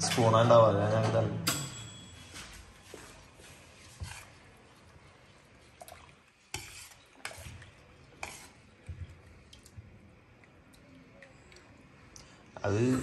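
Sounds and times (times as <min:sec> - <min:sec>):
spoon stirring in boiling water: 0:02.6 - 0:12.6.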